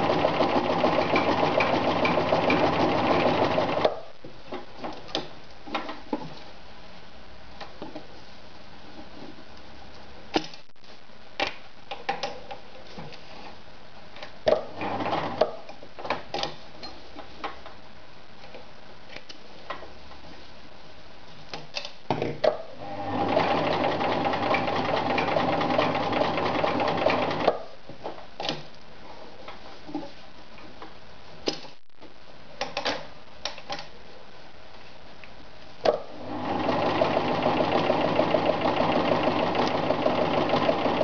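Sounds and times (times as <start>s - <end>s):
sewing machine stitching: 0.0s - 4.0s, 14.7s - 15.5s, 22.8s - 27.6s, 36.2s - 41.0s.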